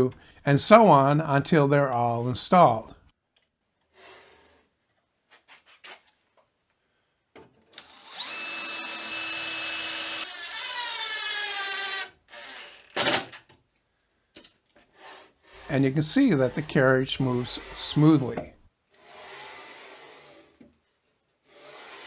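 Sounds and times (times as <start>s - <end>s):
cordless drill whine: 7.8s - 12.9s.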